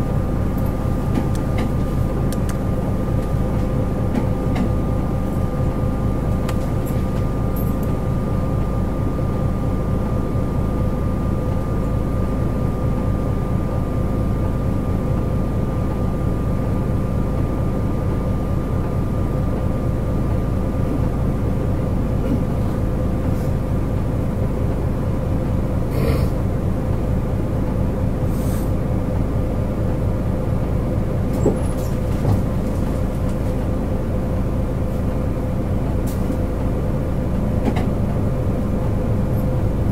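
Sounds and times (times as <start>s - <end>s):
steady whine: 0.0s - 25.2s
bus diesel engine running: 0.0s - 39.9s.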